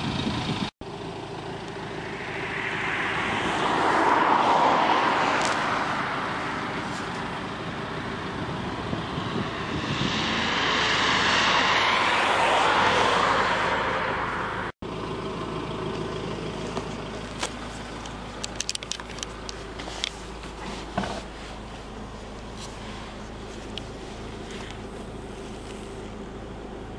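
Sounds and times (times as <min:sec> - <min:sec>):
outdoor traffic noise: 0:00.0 - 0:26.9
vehicle passing: 0:01.8 - 0:14.8.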